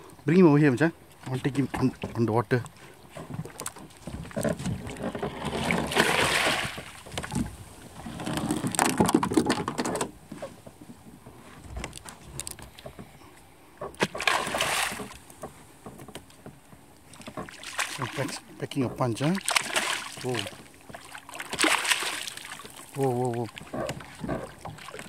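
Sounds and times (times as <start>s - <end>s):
fish thrashing and splashing: 3.1s - 9.9s, 13.9s - 15.4s, 17.1s - 18.5s, 19.2s - 25.0s.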